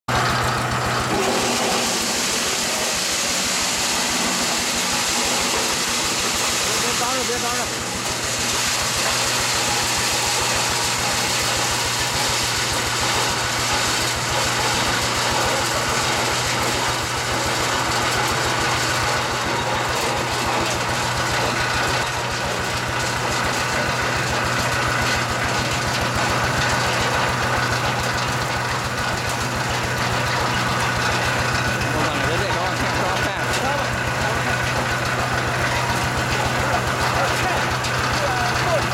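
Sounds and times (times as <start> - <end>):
tractor engine running: 0.0 - 38.9
spinning drum whirring hiss: 0.5 - 17.8.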